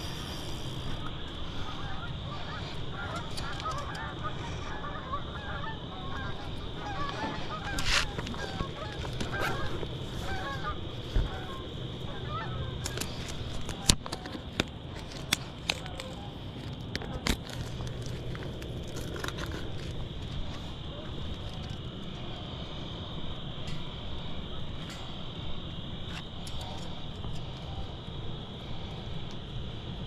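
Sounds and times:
geese honking: 0.0 - 14.3
high insect buzz: 0.0 - 16.4.

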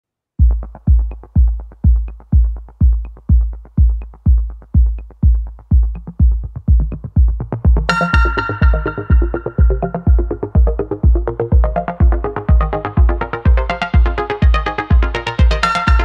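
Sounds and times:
electronic dance music: 0.4 - 16.0
bright synth chords: 6.8 - 16.0.

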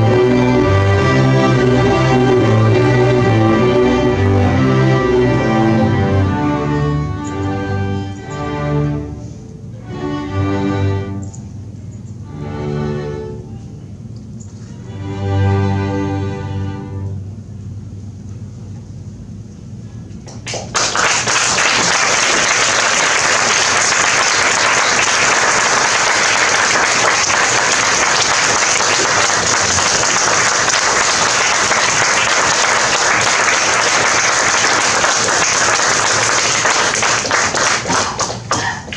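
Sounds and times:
audience applauding: 20.3 - 38.9.

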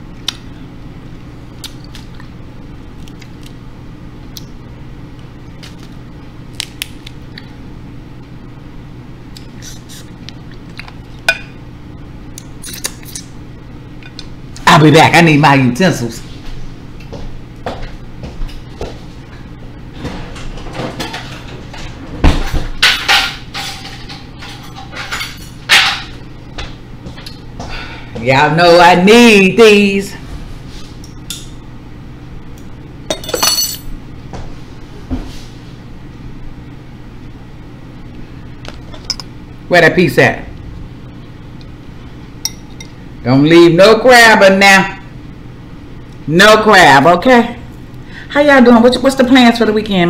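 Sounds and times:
steady low hum: 0.0 - 50.0
utensils scraping and clattering: 22.8 - 26.1.

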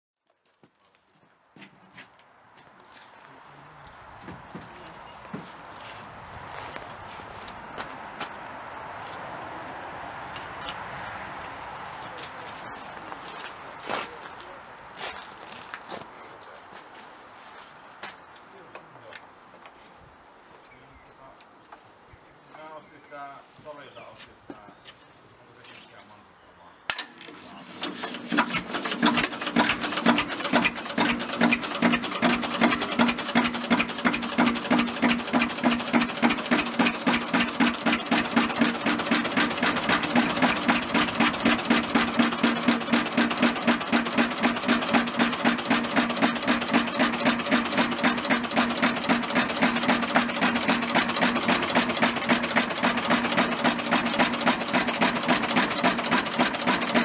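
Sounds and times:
diesel generator running: 27.1 - 57.0.

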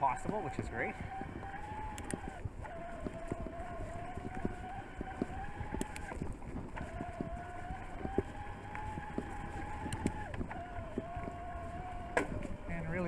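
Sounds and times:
electric bike motor whining: 0.0 - 13.0
bike knocks and rattles: 2.4 - 12.7.

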